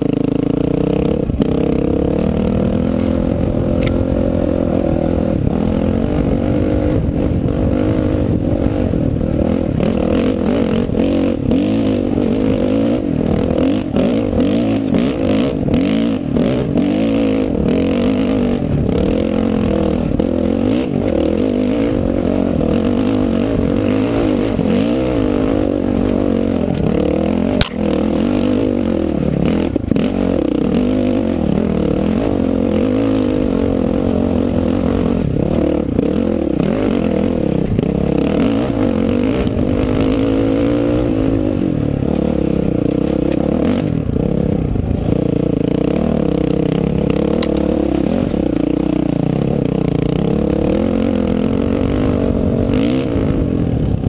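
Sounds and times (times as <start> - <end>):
motorcycle engine revving: 0.0 - 54.0
knocks and clatter from trail: 26.6 - 30.4.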